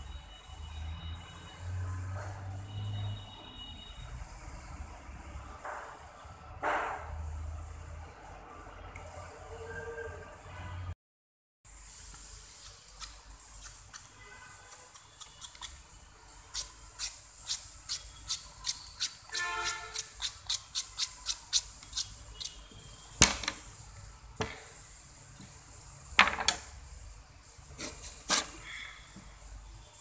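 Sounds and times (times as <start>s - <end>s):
peeler scraping carrot: 12.5s - 22.7s.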